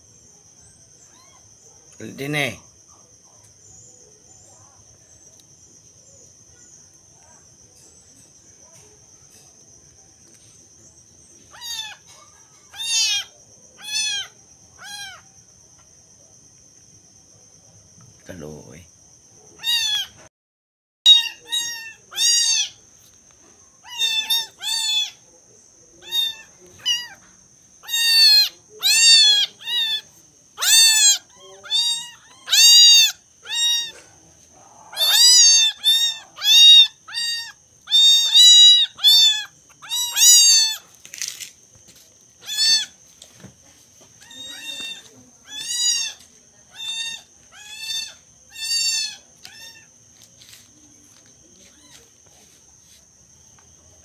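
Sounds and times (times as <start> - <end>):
kittens mewing: 1.0 - 1.8, 11.4 - 15.3, 19.5 - 20.3, 21.1 - 22.9, 23.8 - 25.3, 26.0 - 41.4, 42.4 - 43.0, 44.2 - 50.6, 51.6 - 52.1.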